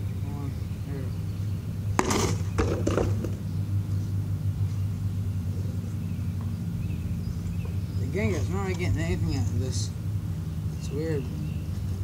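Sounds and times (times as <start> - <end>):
steady low hum: 0.0 - 12.0
box scraping across asphalt: 2.0 - 3.4.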